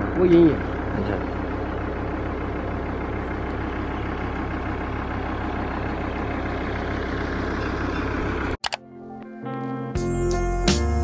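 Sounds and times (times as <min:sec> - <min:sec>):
road noise: 0:00.0 - 0:08.6
engine drone: 0:00.0 - 0:09.2.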